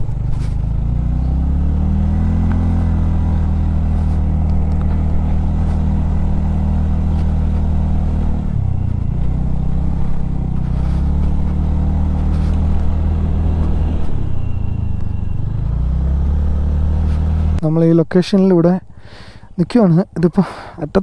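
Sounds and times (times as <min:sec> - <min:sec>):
motorcycle engine running: 0:00.0 - 0:17.6.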